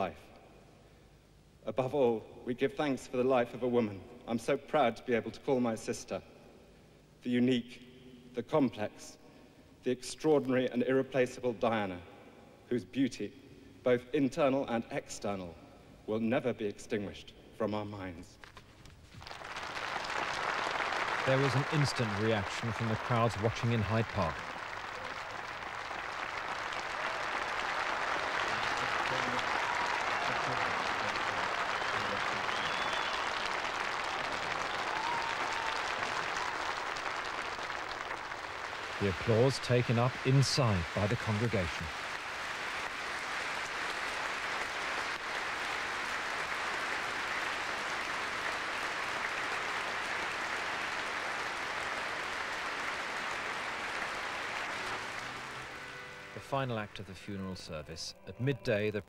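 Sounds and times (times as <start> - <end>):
large crowd clapping: 18.5 - 57.0
congregation applauding: 19.0 - 57.1.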